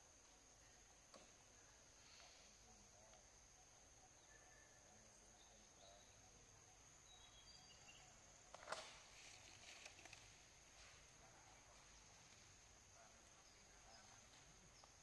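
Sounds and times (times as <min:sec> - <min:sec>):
brief crackle: 0:08.5 - 0:10.3.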